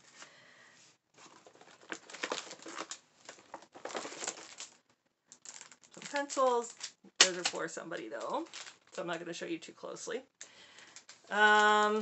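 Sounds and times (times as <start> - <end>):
shopping bag crinkling and rustling: 1.2 - 4.8, 5.4 - 9.2.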